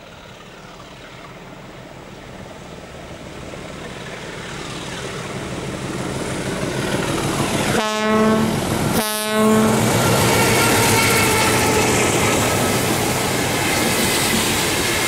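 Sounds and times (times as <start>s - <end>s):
diesel locomotive engine and wheels: 0.0s - 15.0s
train horn blasts: 7.7s - 12.3s.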